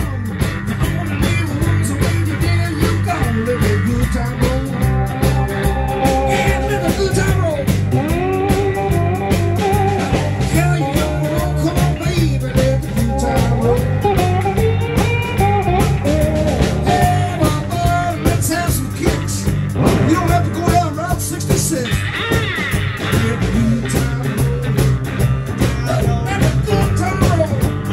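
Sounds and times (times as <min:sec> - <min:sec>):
bass line: 0:00.0 - 0:27.9
drums: 0:00.0 - 0:27.9
electric slide guitar: 0:00.0 - 0:27.9.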